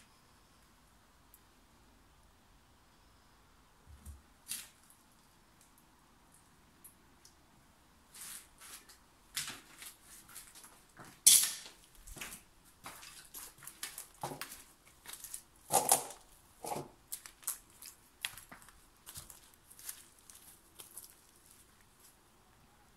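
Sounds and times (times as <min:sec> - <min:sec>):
crunches and rustles of movement: 0:08.2 - 0:22.2.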